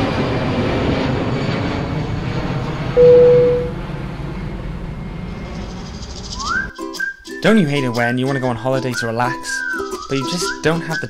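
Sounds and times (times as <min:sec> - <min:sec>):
airplane engine noise: 0:00.0 - 0:06.7
clear ding: 0:03.0 - 0:03.7.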